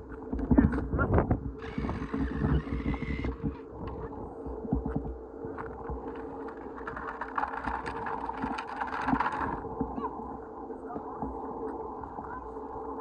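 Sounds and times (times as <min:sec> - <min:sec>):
toy motorcycle motor hum: 0:01.6 - 0:04.1
plastic wheels clicking and scraping: 0:01.6 - 0:04.2, 0:05.6 - 0:09.9.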